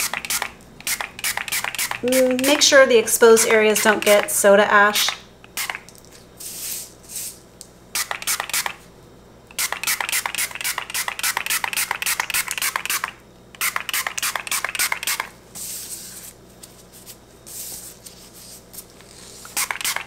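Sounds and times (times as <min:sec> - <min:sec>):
spray bottle hissing sprays: 0:00.0 - 0:02.7, 0:05.5 - 0:05.8, 0:06.4 - 0:07.4, 0:08.0 - 0:08.8, 0:09.5 - 0:15.8, 0:19.5 - 0:20.0.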